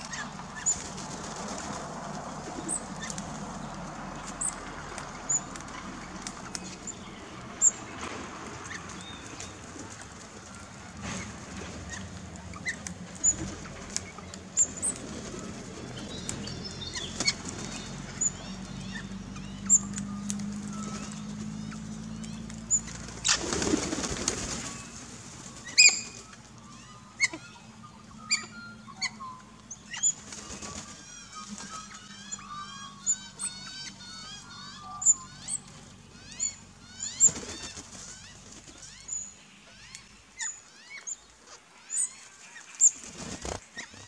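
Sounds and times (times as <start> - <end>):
bird wings flapping: 0.2 - 5.0, 7.9 - 18.1, 20.4 - 26.4, 30.1 - 31.9, 37.1 - 38.9, 42.2 - 44.0
high bird chirps: 16.0 - 22.9, 25.6 - 42.2
bird warbling twitter: 16.0 - 23.4, 24.6 - 44.0.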